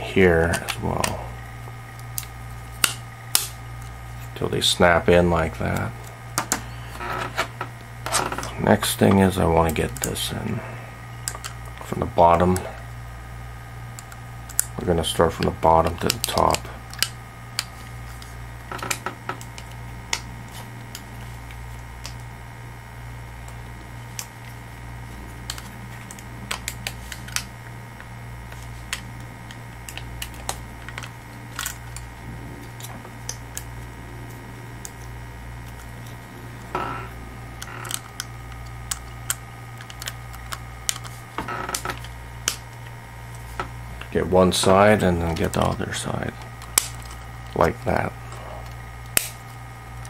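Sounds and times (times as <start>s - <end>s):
steady low hum: 0.0s - 50.0s
plastic parts clicking and tapping: 37.6s - 42.6s.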